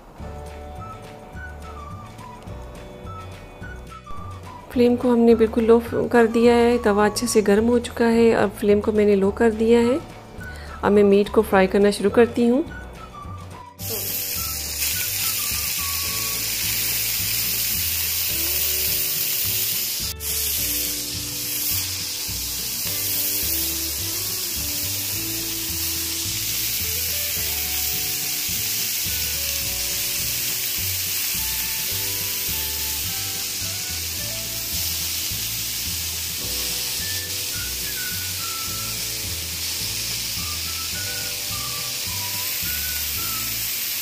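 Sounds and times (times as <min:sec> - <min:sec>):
background music with beat: 0:00.0 - 0:05.9, 0:08.9 - 0:11.0, 0:11.7 - 0:43.5
meat sizzling in oil: 0:13.8 - 0:44.0.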